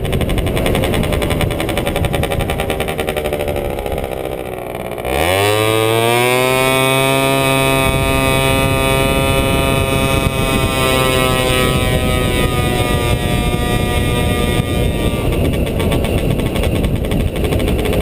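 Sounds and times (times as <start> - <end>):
scooter engine revving: 0.0 - 18.0
wind noise: 0.0 - 18.0.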